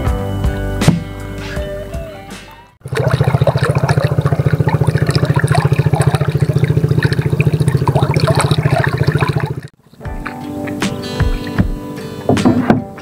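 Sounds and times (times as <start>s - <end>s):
small engine running: 2.8s - 9.7s
water trickling and dripping: 2.8s - 10.0s.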